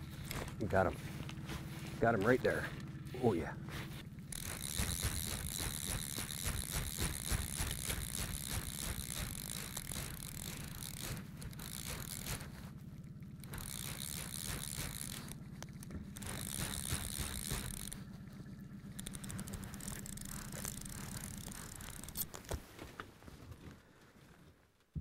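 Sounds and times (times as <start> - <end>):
steady low hum: 0.0 - 22.6
fly reel ratchet clicking: 4.2 - 18.2, 18.8 - 22.4.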